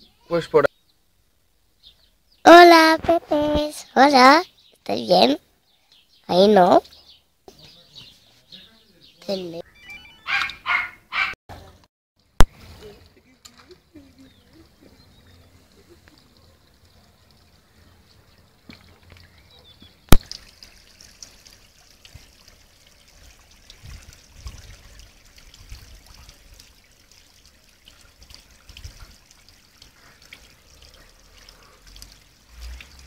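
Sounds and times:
water trickling in a pond: 0:11.5 - 0:33.0.

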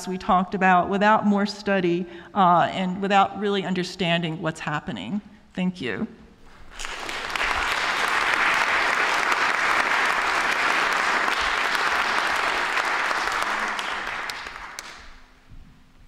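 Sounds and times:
audience applauding: 0:06.5 - 0:15.4.

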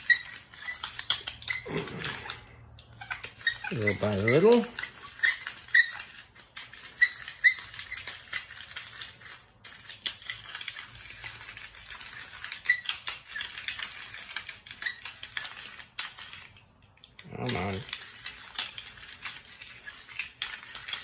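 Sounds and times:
pepper mill grinding: 0:00.0 - 0:21.0
pepper mill squeaking: 0:00.0 - 0:21.0.

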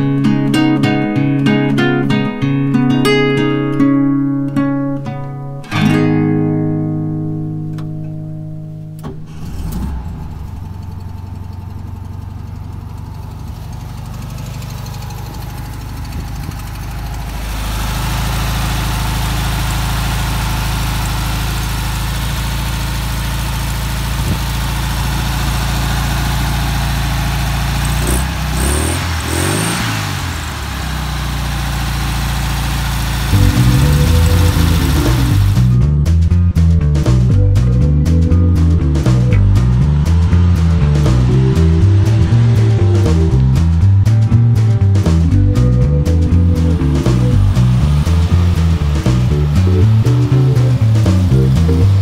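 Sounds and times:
acoustic guitar music: 0:00.0 - 0:12.4, 0:33.3 - 0:52.0
car engine idling and revving: 0:08.7 - 0:52.0.

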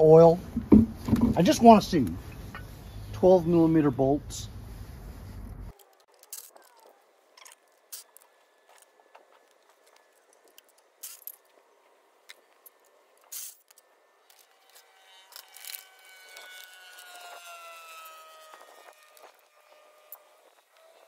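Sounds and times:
steady whine: 0:11.8 - 0:21.0.

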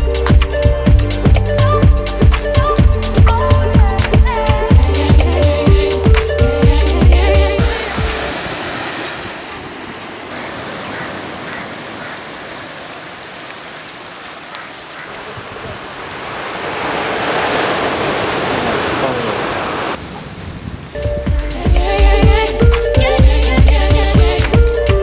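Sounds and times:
surf breaking on beach: 0:07.6 - 0:21.2.

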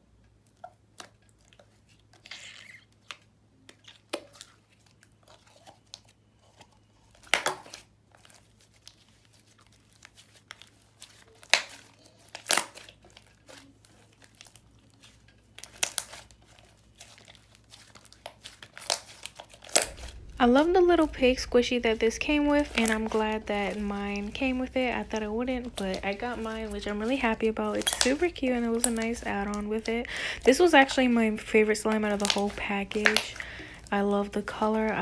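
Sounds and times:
slime clicking and popping: 0:32.1 - 0:33.4.

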